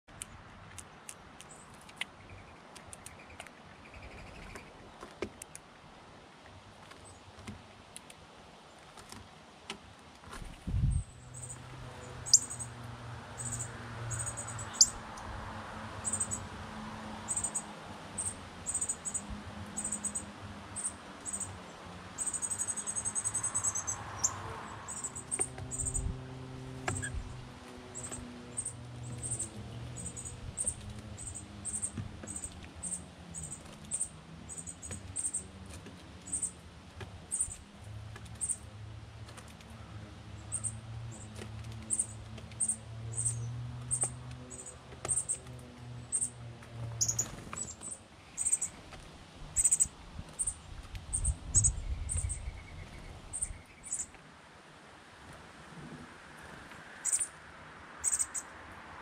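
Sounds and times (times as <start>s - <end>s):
high bird chirps: 12.2s - 12.7s, 13.4s - 15.0s, 22.2s - 26.1s, 47.0s - 48.7s, 49.6s - 54.1s, 57.0s - 57.3s, 58.0s - 58.4s
birds pecking on wooden rail: 26.7s - 47.9s.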